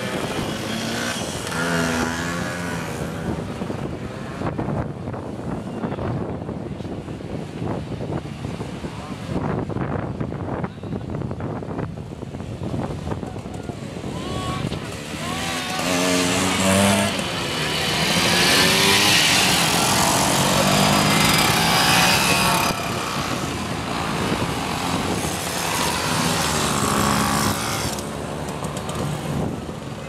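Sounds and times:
two-stroke mopeds pulling away: 14.7 - 29.8.

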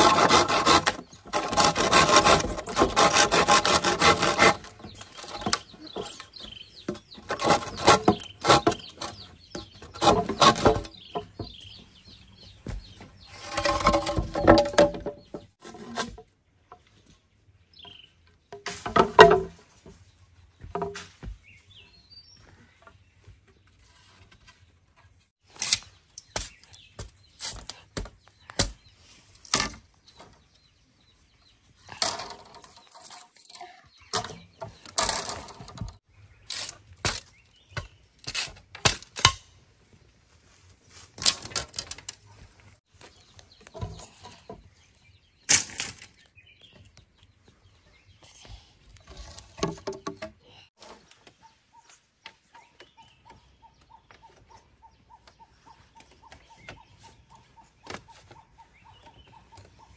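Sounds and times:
bamboo rustling scrapes: 0.0 - 6.4, 7.2 - 9.2, 9.8 - 11.0, 13.2 - 14.9, 15.5 - 16.3, 23.7 - 24.7
bamboo poles knocking: 13.4 - 15.5, 18.5 - 20.0, 20.6 - 21.4, 49.6 - 50.4.

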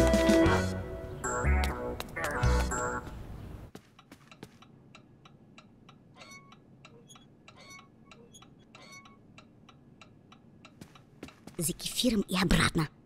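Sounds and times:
clock ticking: 3.8 - 12.6.

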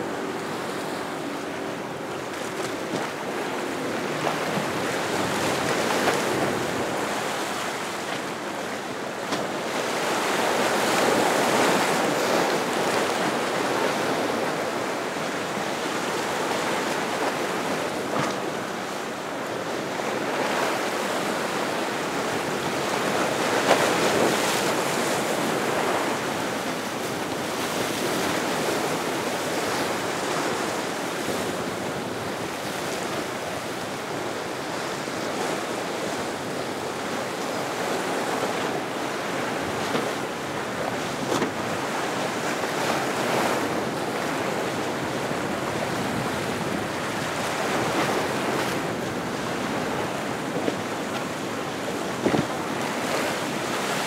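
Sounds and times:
ocean surf breaking: 0.0 - 54.0
wind on microphone: 20.6 - 54.0.

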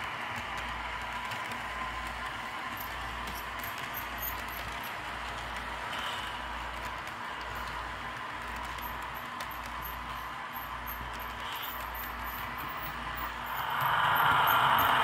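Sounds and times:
wheels clicking on rails: 0.0 - 15.0
model train cars rolling hiss: 5.6 - 6.8, 7.4 - 15.0
faint steady hum: 9.7 - 15.0.

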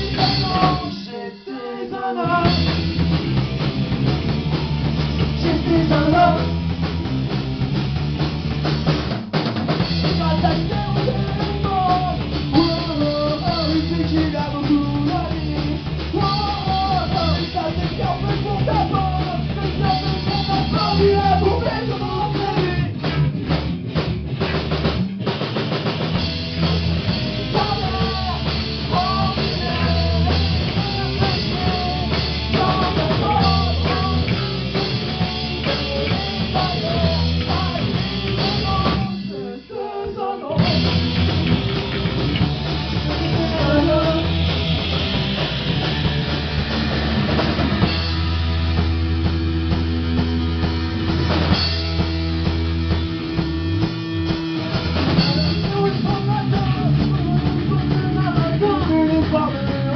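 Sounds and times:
drum kit: 0.0 - 59.9
electric guitars: 0.0 - 59.9.

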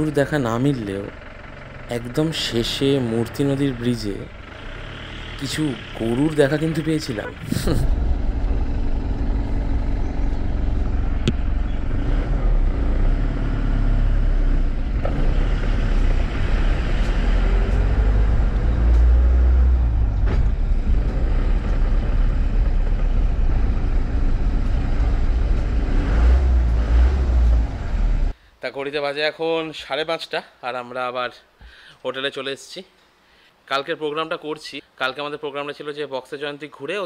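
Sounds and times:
car engine and road noise: 0.0 - 28.4.

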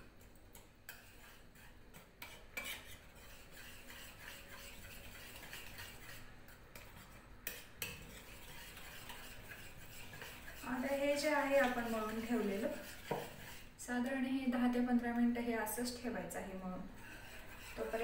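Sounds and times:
spoon scraping batter in bowl: 0.0 - 18.0.

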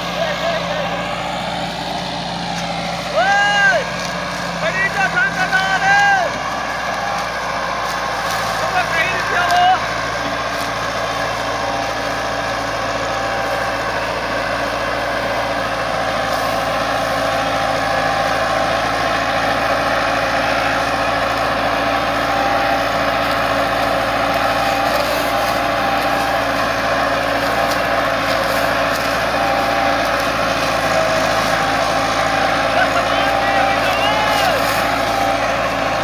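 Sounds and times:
diesel tractor engine under load: 0.0 - 36.0.

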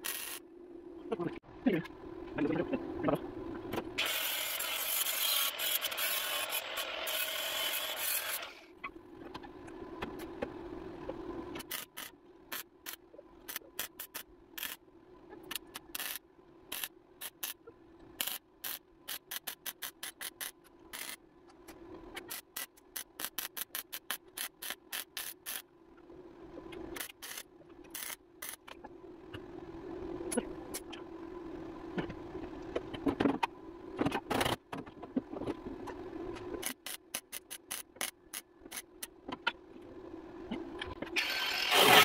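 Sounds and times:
arc welding crackling: 11.6 - 14.8.

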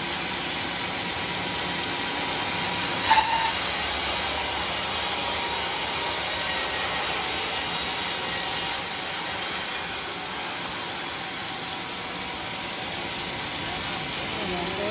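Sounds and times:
band saw cutting wood: 3.0 - 9.9.

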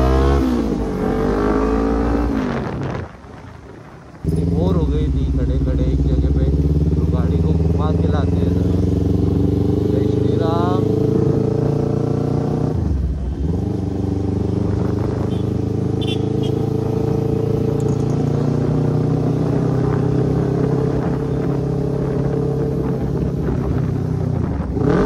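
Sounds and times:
motorcycle engine with loud exhaust: 0.0 - 25.0.

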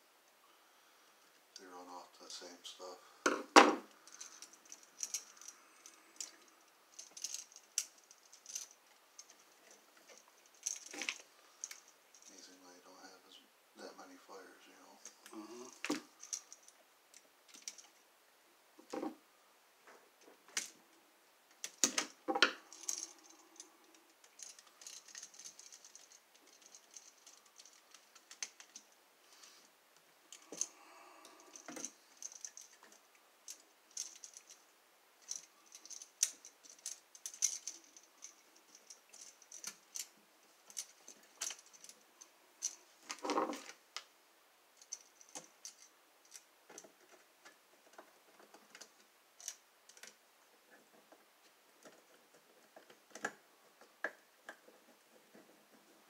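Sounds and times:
small metal clicks and scrapes: 3.9 - 12.4, 15.0 - 18.0, 21.5 - 29.7, 30.3 - 34.6, 35.2 - 44.1, 44.8 - 56.0.

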